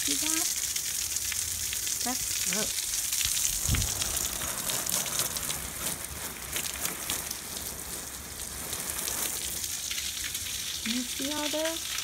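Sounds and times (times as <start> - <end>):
droplets pattering on leaves: 0.0 - 12.0
garden hose spray hissing: 0.0 - 12.0
low bump: 3.6 - 4.3.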